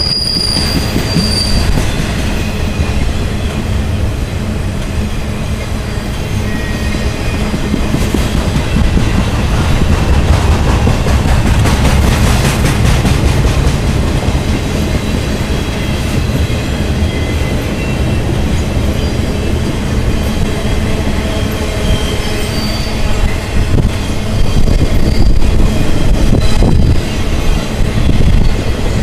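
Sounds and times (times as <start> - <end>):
high wheel squeal: 0.0 - 3.8, 5.0 - 9.1, 14.8 - 29.0
freight train rumbling and clattering: 0.0 - 29.0.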